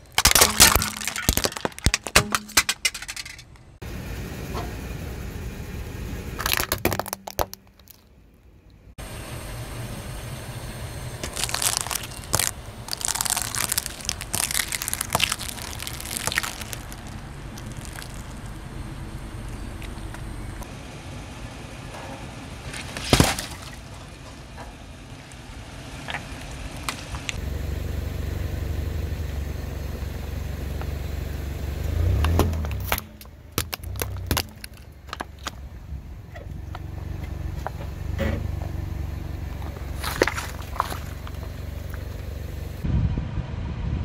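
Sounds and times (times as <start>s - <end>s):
loud crack: 0.0s - 3.7s, 11.2s - 18.6s
objects crunching and snapping: 0.0s - 3.7s, 6.4s - 8.1s, 11.2s - 18.6s, 22.8s - 23.8s, 32.2s - 35.7s, 39.6s - 42.1s
car engine at low speed: 0.0s - 44.0s.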